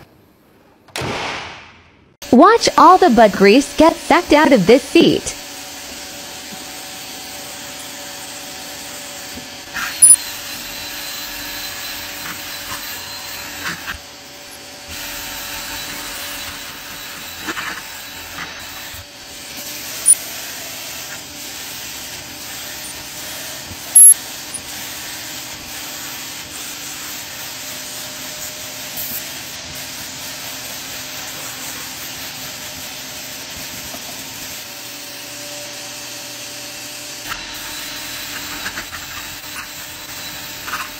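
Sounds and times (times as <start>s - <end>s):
sharp loud clicks: 0.9s - 2.1s
upholstery extractor running: 5.4s - 26.2s.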